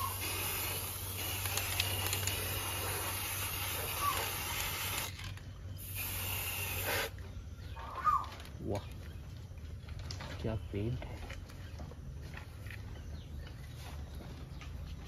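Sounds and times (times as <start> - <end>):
spray paint can hissing: 0.0 - 7.2
faint bird chirp: 5.2 - 15.0.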